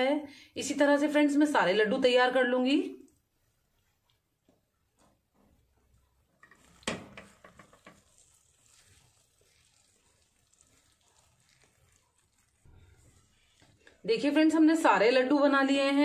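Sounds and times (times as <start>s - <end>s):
crackly rustle of puffed rice: 6.4s - 14.1s.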